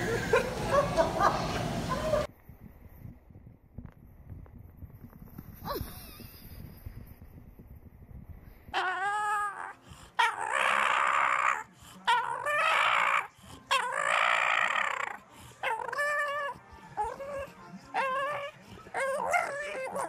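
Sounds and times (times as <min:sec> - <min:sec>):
puppy whining howls: 0:08.7 - 0:20.0.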